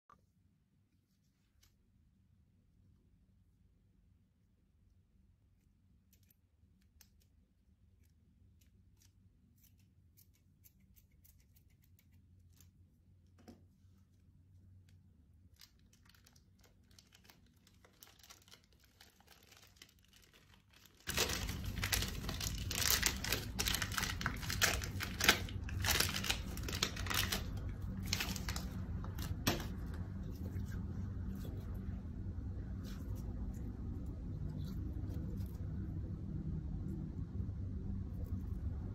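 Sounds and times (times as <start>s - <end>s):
plastic piping bag crinkling: 15.4s - 30.5s
slime crackling when squeezed: 15.5s - 29.7s.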